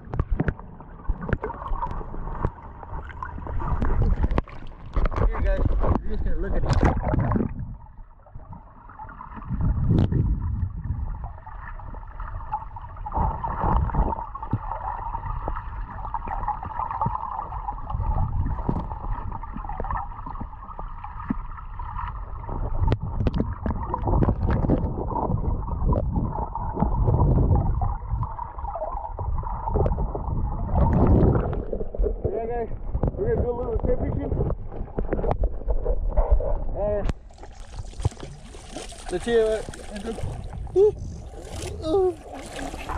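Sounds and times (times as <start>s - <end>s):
underwater clicks and knocks: 0.0s - 7.7s, 18.4s - 20.6s, 22.7s - 28.3s, 29.7s - 41.8s
muffled underwater rushing: 0.0s - 42.9s.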